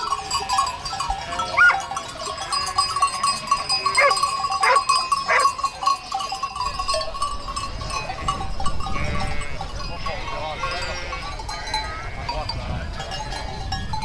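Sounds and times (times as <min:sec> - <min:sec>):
sheep bleating: 0:00.4 - 0:01.8, 0:09.0 - 0:12.9.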